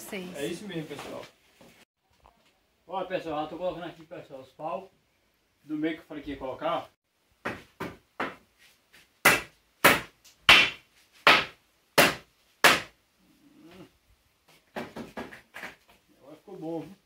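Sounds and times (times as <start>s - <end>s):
hammer striking nails into wood: 9.2s - 13.0s.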